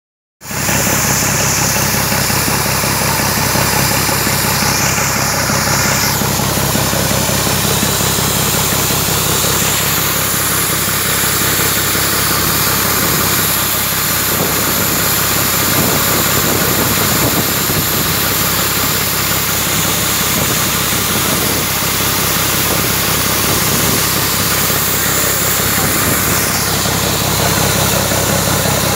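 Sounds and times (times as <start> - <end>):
engine idling: 0.4 - 28.9.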